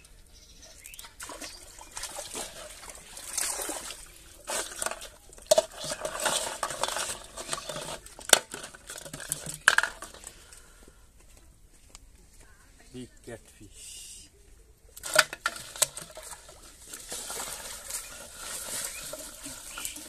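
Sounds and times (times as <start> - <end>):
water sloshing and splashing: 0.9 - 10.4, 15.0 - 20.0
bottles and fish clattering in basin: 0.9 - 10.7, 15.0 - 20.0.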